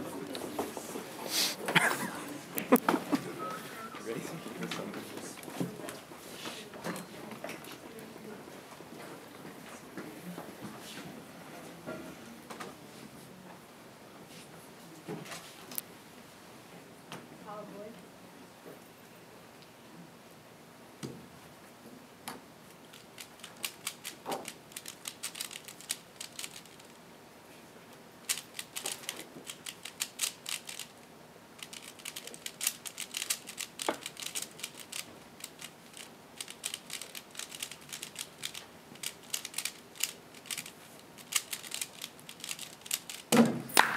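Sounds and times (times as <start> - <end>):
puzzle cube clicking: 22.9 - 26.9, 28.2 - 30.9, 31.6 - 43.9.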